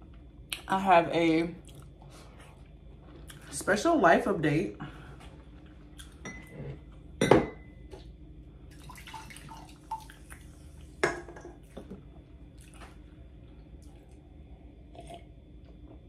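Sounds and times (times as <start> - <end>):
tableware knocking and clinking: 7.2 - 7.7.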